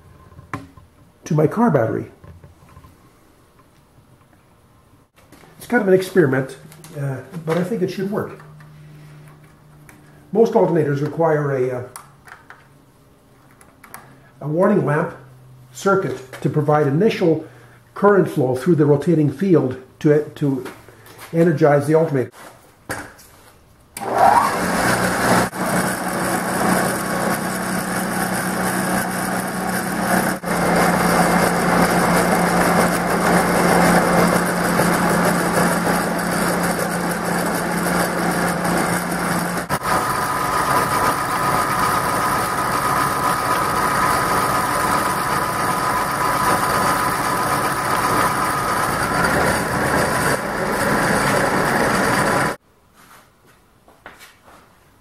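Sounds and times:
electric motor humming: 24.0 - 52.6
high steady whine: 25.2 - 52.6.

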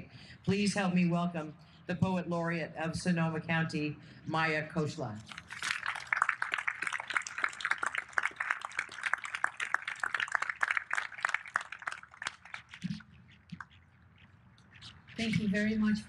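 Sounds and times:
audience applauding: 5.3 - 12.9.

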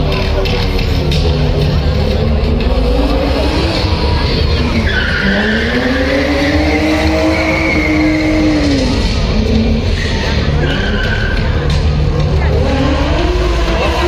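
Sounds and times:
car engine revving: 0.0 - 14.0
tyres squealing: 4.4 - 9.2, 9.8 - 12.0.

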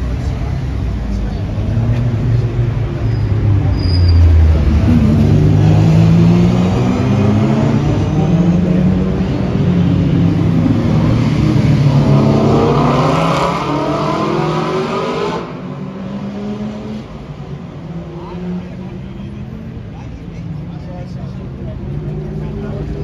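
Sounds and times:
race car engines passing: 0.0 - 23.0
car accelerating: 0.2 - 23.0.

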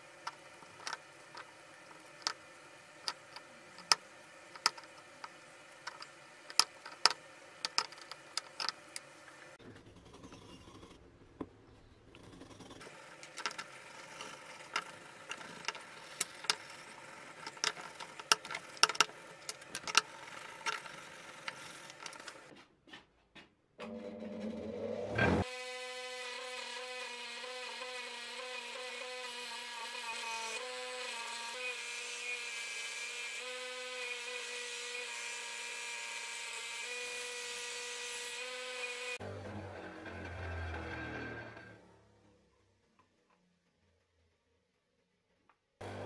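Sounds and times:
bench grinder motor humming: 12.4 - 22.5, 23.9 - 42.0.

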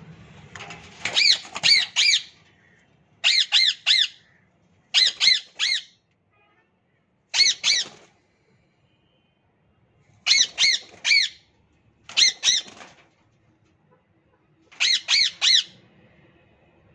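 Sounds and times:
parrots screeching: 1.1 - 2.4, 3.2 - 4.3, 4.9 - 6.0, 7.3 - 8.1, 10.2 - 11.4, 12.1 - 12.8, 14.8 - 15.8.

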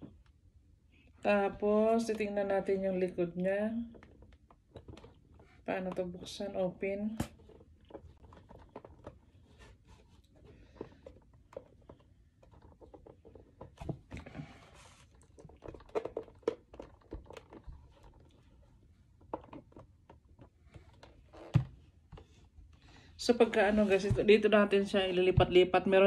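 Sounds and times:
hands handling plastic radio casing: 4.0 - 6.0, 7.2 - 22.2.

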